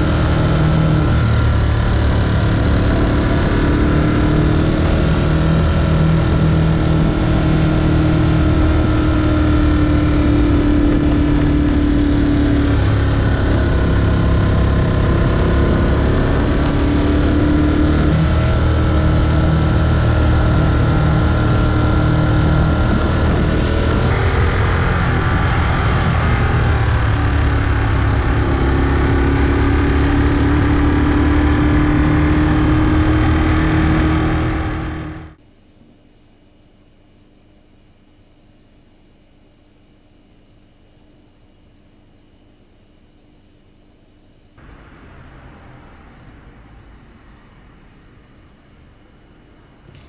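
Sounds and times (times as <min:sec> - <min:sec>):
motorcycle engine running: 0:00.0 - 0:35.4.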